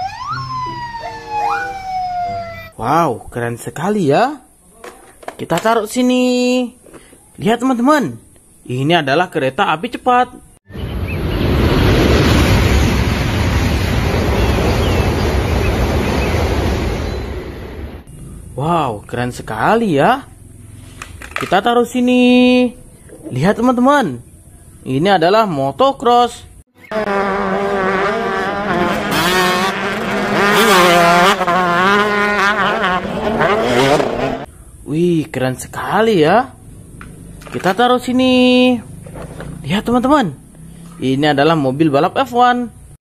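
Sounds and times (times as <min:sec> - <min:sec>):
high-speed train roaring past: 0:10.8 - 0:18.1
motocross bike engines revving: 0:26.8 - 0:34.5, 0:36.0 - 0:41.2.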